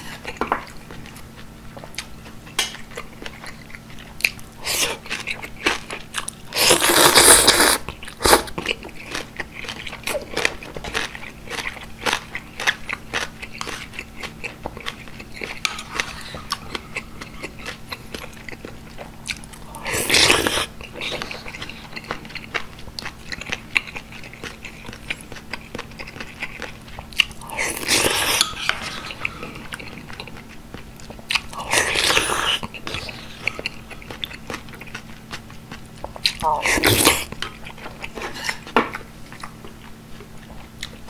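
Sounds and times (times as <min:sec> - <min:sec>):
slurping: 0:06.5 - 0:08.5
chewing with wet crunches: 0:07.8 - 0:28.4, 0:29.2 - 0:41.0.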